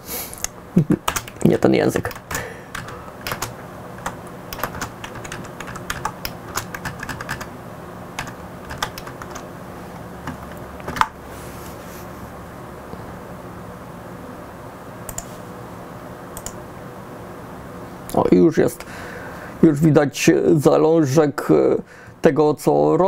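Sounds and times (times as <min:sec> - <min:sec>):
faint steady hum: 0:00.0 - 0:23.0
computer keyboard typing: 0:01.0 - 0:07.5, 0:08.2 - 0:09.5, 0:10.2 - 0:11.2, 0:16.4 - 0:16.6.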